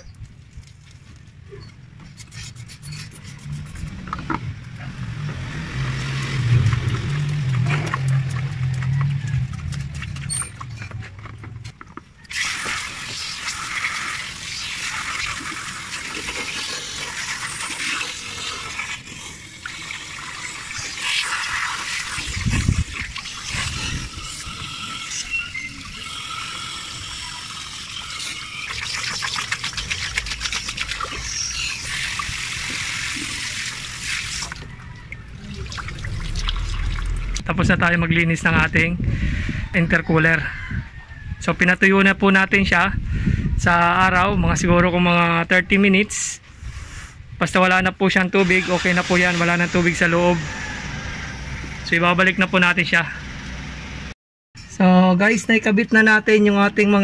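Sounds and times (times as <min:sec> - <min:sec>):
low steady hum: 0:34.7 - 0:39.6.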